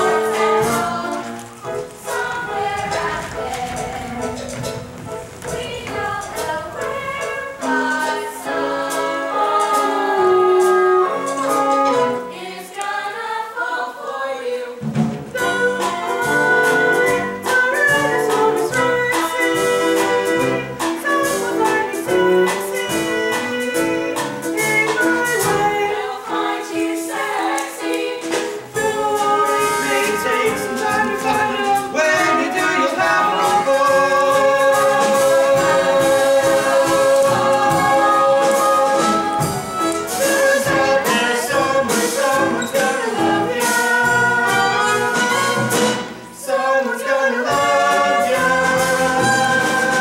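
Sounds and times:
people singing: 0.0s - 50.0s
instrumental accompaniment with beat: 14.8s - 46.4s.

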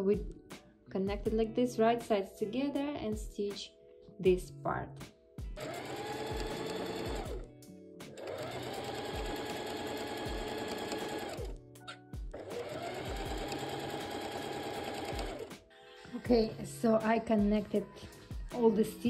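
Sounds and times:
electric sewing machine stitching: 5.6s - 7.5s, 8.1s - 11.6s, 12.3s - 15.6s.

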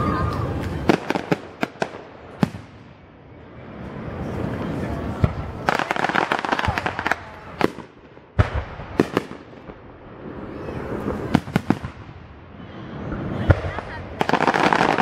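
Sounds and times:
fireworks crackling pops: 0.1s - 2.9s, 5.2s - 9.8s, 10.6s - 12.2s, 13.4s - 15.0s
fireworks booms and bangs: 0.3s - 3.1s, 4.6s - 15.0s.

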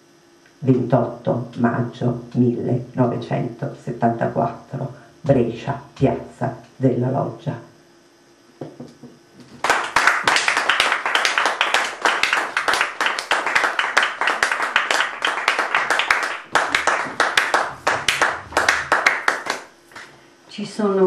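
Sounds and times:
audience applauding: 9.6s - 19.7s.

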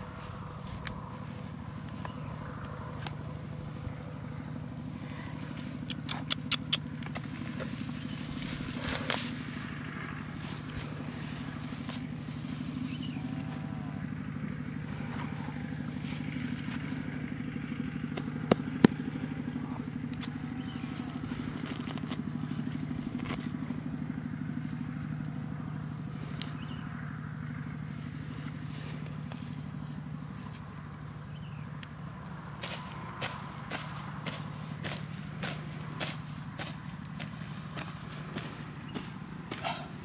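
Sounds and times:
small engine humming: 0.0s - 40.0s
sharp clicks: 5.8s - 7.4s.

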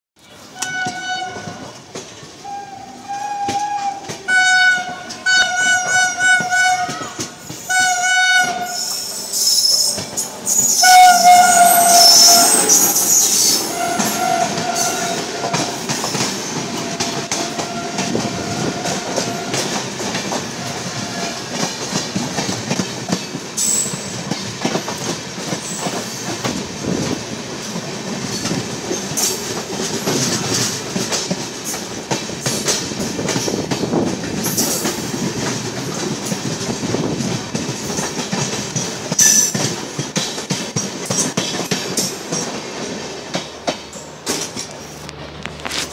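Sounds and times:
trains rushing and rail clatter: 0.2s - 45.9s
train horn blasts: 0.5s - 1.8s, 2.4s - 9.0s, 10.6s - 19.8s, 20.5s - 21.5s.

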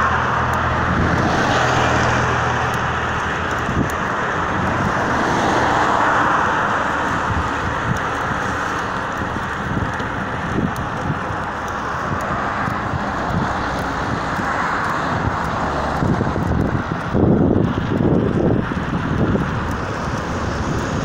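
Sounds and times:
road noise: 0.0s - 21.0s
wind buffeting microphone: 0.0s - 21.0s.

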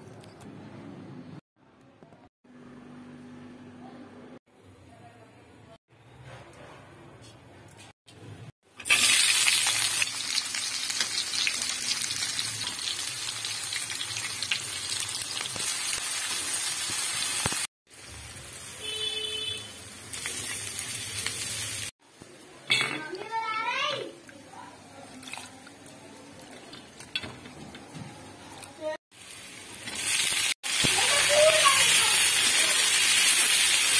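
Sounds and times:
onions sizzling in hot oil: 8.7s - 22.3s, 29.1s - 33.9s.

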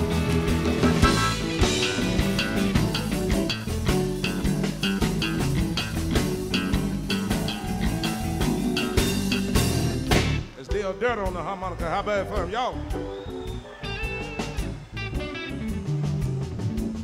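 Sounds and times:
live blues band playing: 0.0s - 10.6s, 12.8s - 17.0s.

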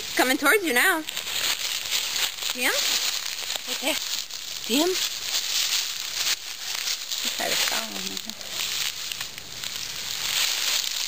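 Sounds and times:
dry leaves rustling: 0.0s - 11.0s.

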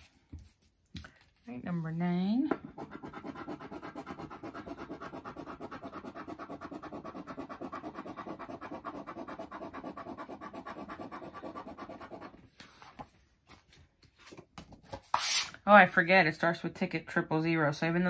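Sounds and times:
scratching lottery ticket: 2.8s - 12.4s.

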